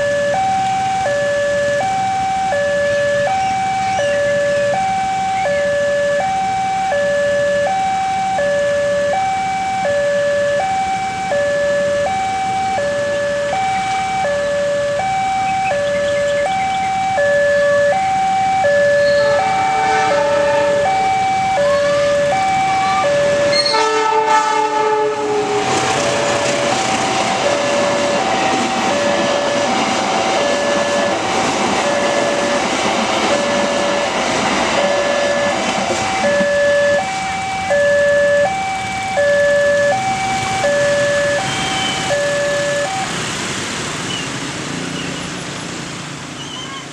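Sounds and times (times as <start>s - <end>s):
level-crossing two-tone alarm: 0.0s - 43.1s
train wheels on rails: 10.6s - 46.9s
train horn: 19.0s - 21.1s, 22.9s - 29.8s, 30.4s - 31.2s, 31.8s - 32.7s, 33.3s - 37.2s.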